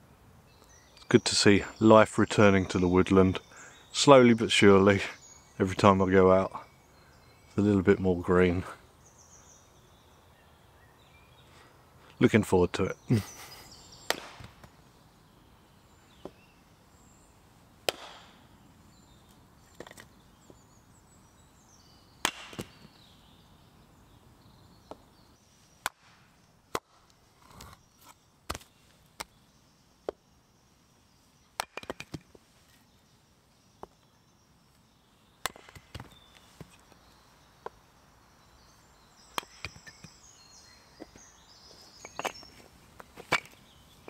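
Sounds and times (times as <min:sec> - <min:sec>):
axe splitting firewood: 0:14.1 - 0:14.7, 0:17.8 - 0:18.4, 0:22.2 - 0:22.8, 0:25.8 - 0:29.3, 0:31.6 - 0:32.4, 0:35.4 - 0:36.7, 0:39.3 - 0:40.0, 0:42.0 - 0:43.6.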